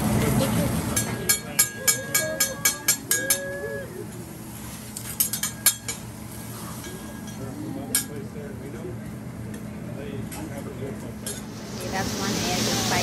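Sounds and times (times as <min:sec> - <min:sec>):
metal spatula clanging on griddle: 0:01.0 - 0:03.4, 0:05.1 - 0:06.1.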